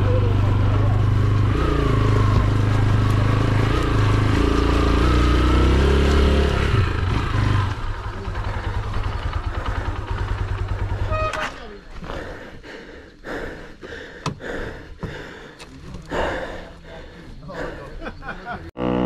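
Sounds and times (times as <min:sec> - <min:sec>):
motorcycle engine revving: 0:00.0 - 0:12.4.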